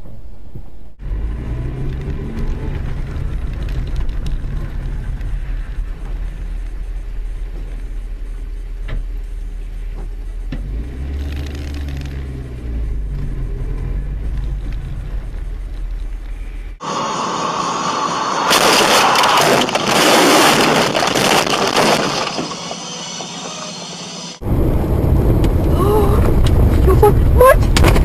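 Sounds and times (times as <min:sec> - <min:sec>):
car engine rumble: 0:00.0 - 0:28.0
car crash impacts and breaking: 0:18.4 - 0:23.5.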